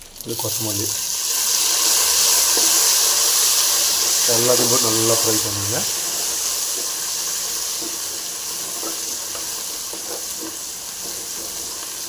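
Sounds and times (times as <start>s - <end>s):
food sizzling in hot oil: 0.0s - 12.0s
spatula scraping and tapping: 7.7s - 11.9s.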